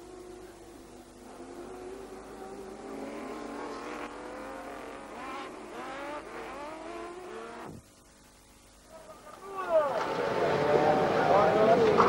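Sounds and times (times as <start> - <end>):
race car engines accelerating: 1.2 - 7.8, 9.9 - 12.0.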